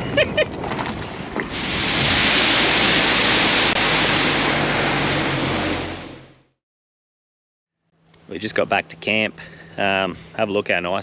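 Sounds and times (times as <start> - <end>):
wind and water rushing: 0.0 - 6.4.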